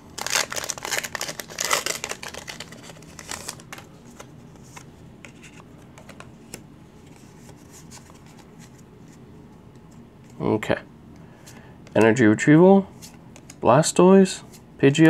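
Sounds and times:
foil wrapper tearing and crinkling: 0.1 - 3.8
cards clicking and rustling: 0.2 - 8.8, 13.0 - 13.6.

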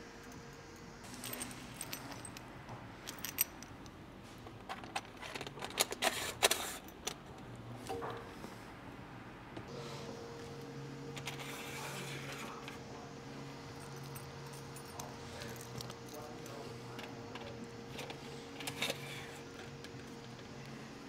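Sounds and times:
metal hardware clinking and scraping: 1.0 - 3.9, 11.1 - 12.8, 13.7 - 20.5.

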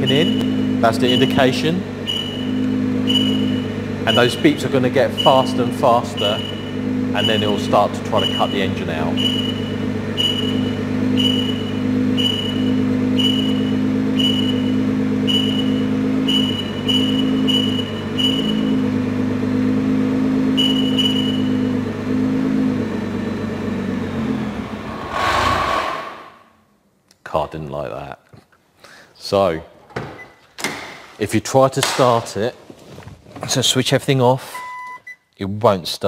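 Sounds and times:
alarm warning beeps: 0.0 - 1.4, 2.1 - 4.4, 5.2 - 5.6, 6.2 - 8.6, 9.2 - 12.6.

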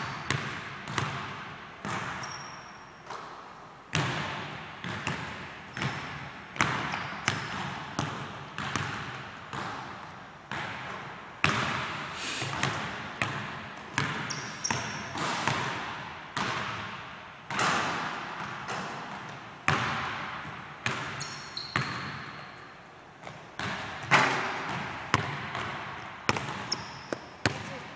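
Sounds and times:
basketball bouncing on hardwood floor: 0.1 - 2.4, 3.9 - 11.9, 12.5 - 16.9, 17.5 - 22.3, 23.2 - 27.8
shoe squeaks: 2.2 - 3.1, 6.9 - 7.6, 14.2 - 15.2, 21.2 - 22.6, 26.6 - 27.3.

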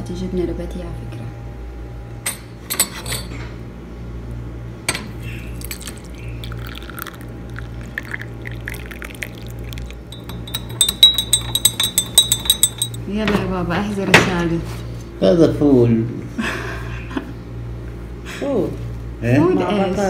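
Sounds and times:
tea pouring into glass: 5.5 - 11.8
light glass clinks: 5.6 - 7.1, 8.0 - 13.1
metal spoon stirring in glass: 5.6 - 13.0.

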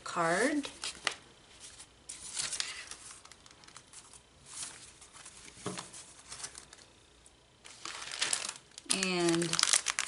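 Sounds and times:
paper and envelopes rustling: 0.6 - 6.9, 7.6 - 10.0.

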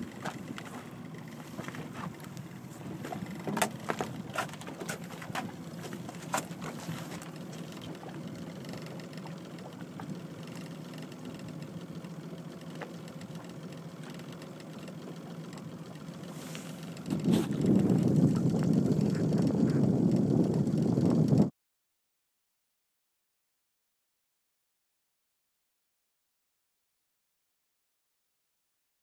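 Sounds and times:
boat engine idling: 0.0 - 21.5
choppy water: 0.0 - 21.5.

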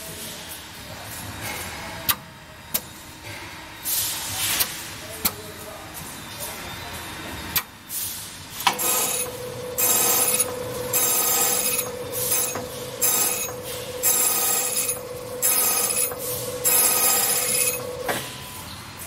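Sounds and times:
spindle humming: 8.8 - 18.3
shrill ringing cutting bursts: 8.8 - 18.7.

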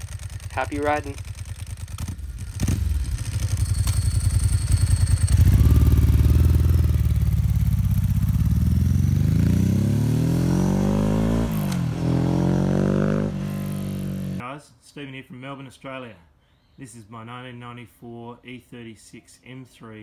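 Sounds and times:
dry clutch rattle: 0.0 - 6.5
motorcycle engine accelerating: 0.0 - 14.4.

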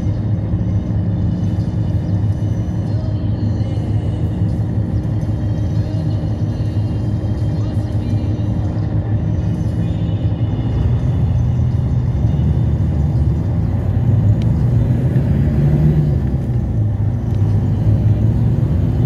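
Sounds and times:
low vehicle engine rumble: 0.0 - 19.0
road rumble inside vehicle: 0.0 - 19.0.

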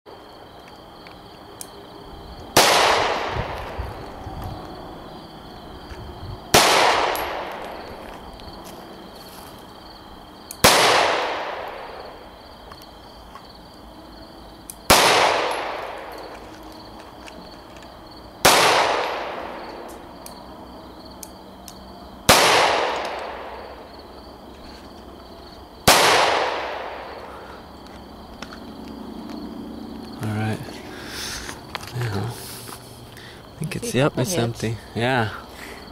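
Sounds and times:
pistol shots with echo: 2.6 - 3.8, 6.5 - 7.7, 10.6 - 12.0, 14.9 - 16.1, 18.4 - 19.8, 22.3 - 23.7, 25.8 - 27.2.

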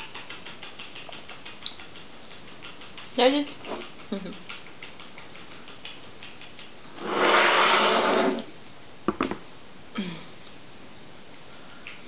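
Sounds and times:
slurp from a mug: 7.0 - 8.5.

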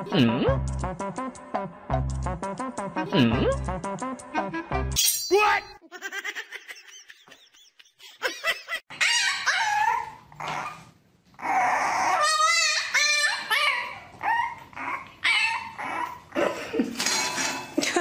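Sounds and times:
puppy whining: 8.9 - 16.5.

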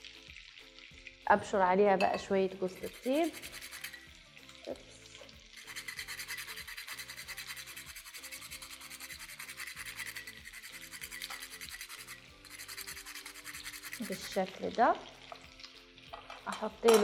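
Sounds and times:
background music: 0.0 - 17.0
nutmeg rasped on hand grater: 2.8 - 4.1, 5.6 - 14.4.

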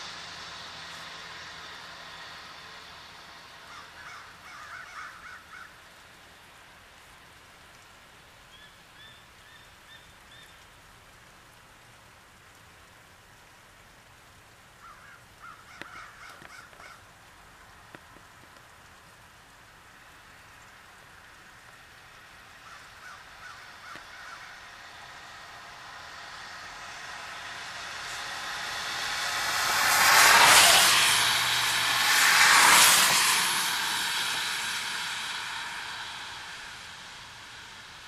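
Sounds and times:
steady rain: 0.0 - 38.0
eagles calling: 3.7 - 5.7, 22.6 - 24.7.

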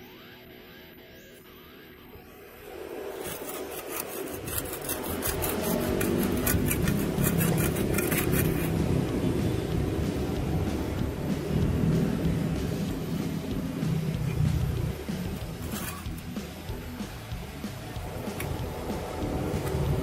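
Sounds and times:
metal trowel scraping stony ground: 3.1 - 8.9, 15.2 - 16.5.

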